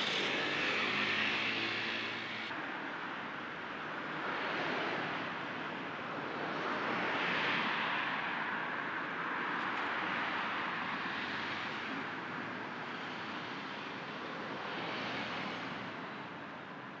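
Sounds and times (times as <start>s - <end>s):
cars passing: 0.0s - 2.6s.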